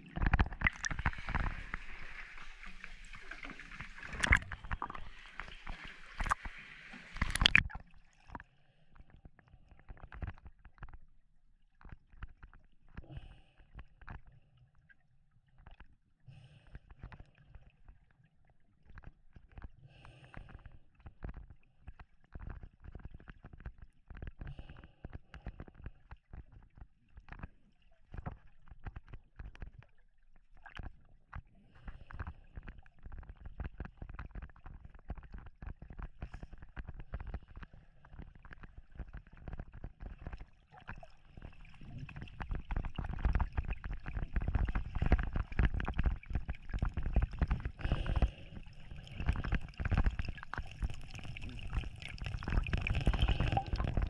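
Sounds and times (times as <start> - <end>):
underwater knocks and thuds: 0.0 - 6.6, 7.2 - 7.8.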